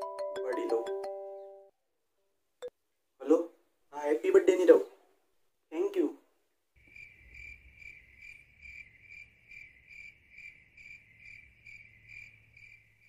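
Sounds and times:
crickets chirping: 6.8s - 13.0s.

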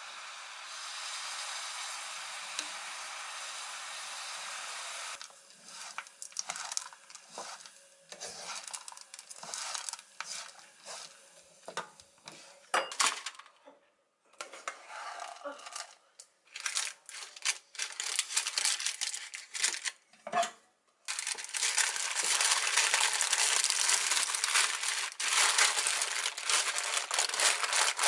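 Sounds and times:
oats sizzling in frying pan: 0.0s - 12.6s, 21.1s - 28.0s
stirring and scraping in pan: 5.3s - 12.7s, 14.4s - 15.9s.

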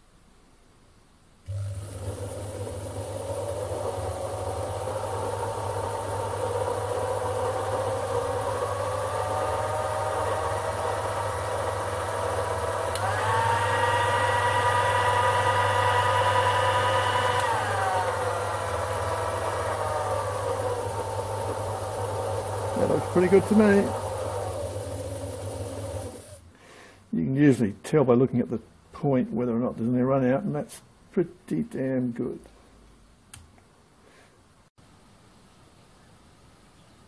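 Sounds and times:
lathe motor humming and whining: 1.5s - 26.5s.

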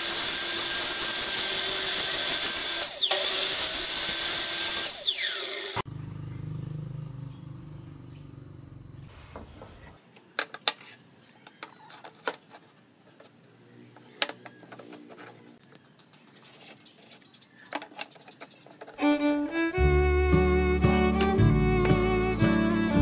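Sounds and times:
bowed strings music: 19.0s - 23.0s.

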